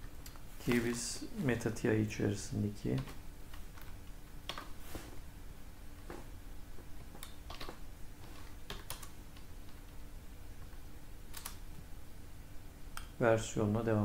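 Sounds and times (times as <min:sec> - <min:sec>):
faint steady hum: 0:00.0 - 0:14.0
keyboard keystrokes clicking: 0:07.1 - 0:09.9, 0:11.3 - 0:11.6.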